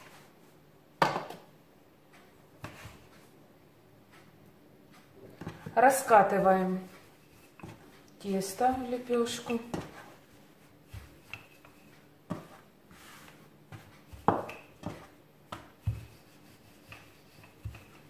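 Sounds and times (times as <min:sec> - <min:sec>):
rolling pin rubbing on dough: 0:04.9 - 0:18.0.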